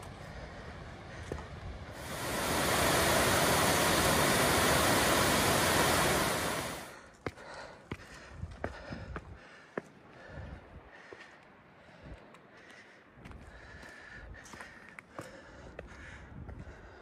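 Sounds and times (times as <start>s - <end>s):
loud rushing noise: 1.7s - 7.0s.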